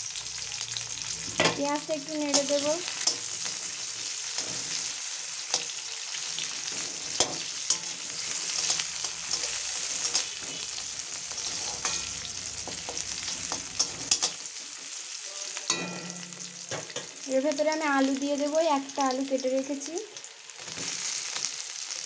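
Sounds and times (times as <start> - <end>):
onions sizzling in hot oil: 0.0 - 22.0
metal spatula scraping pan: 2.3 - 15.0.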